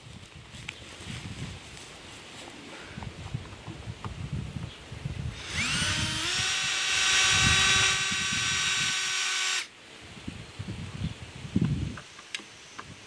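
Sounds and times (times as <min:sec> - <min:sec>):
cordless drill whining: 0:05.4 - 0:09.7.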